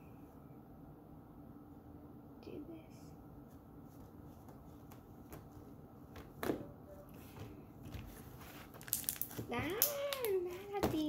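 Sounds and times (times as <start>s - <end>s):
slime clicking in hands: 8.9s - 10.4s.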